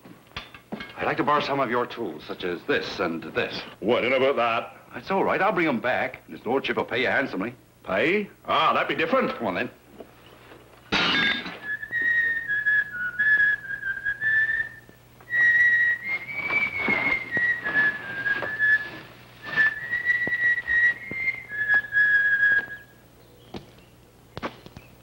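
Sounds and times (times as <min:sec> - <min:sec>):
person whistling a tune: 0:11.6 - 0:22.9.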